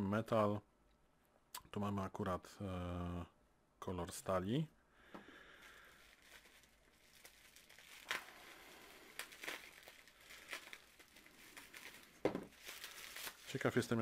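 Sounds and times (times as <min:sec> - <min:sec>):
packing paper crinkling: 0:05.4 - 0:14.0
bubble wrap crackling: 0:05.5 - 0:14.0.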